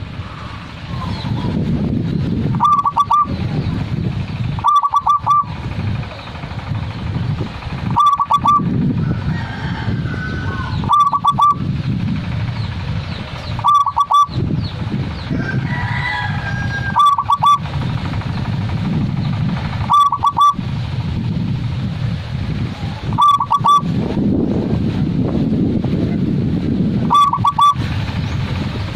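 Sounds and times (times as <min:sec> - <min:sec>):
steady low rumble: 0:00.0 - 0:28.9
dove cooing: 0:02.6 - 0:03.4, 0:04.6 - 0:05.5, 0:07.9 - 0:08.7, 0:10.4 - 0:11.6, 0:13.6 - 0:14.4, 0:15.7 - 0:17.7, 0:19.8 - 0:20.6, 0:23.0 - 0:23.9, 0:27.1 - 0:27.8
faint higher bird calls: 0:02.6 - 0:03.8, 0:04.6 - 0:05.6, 0:07.9 - 0:08.7, 0:10.2 - 0:11.6, 0:13.4 - 0:14.7, 0:16.0 - 0:17.6, 0:19.9 - 0:20.6, 0:23.1 - 0:23.8, 0:27.1 - 0:28.4.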